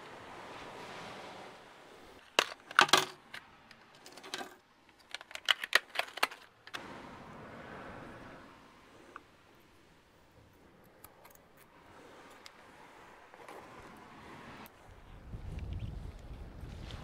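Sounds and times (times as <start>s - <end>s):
fishing tackle clicking and rattling: 2.3s - 6.7s
wind on microphone: 14.2s - 17.0s.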